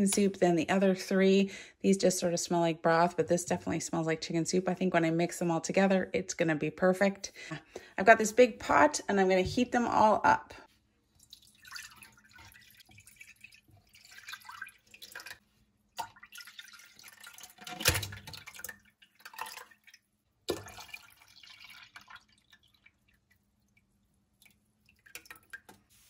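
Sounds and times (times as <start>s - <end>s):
broth pouring and splashing into a pot: 11.1s - 26.0s.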